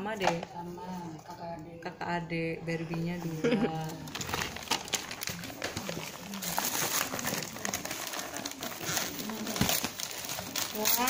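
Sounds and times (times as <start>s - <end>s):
wrapping paper rustling and crinkling: 3.7s - 11.0s.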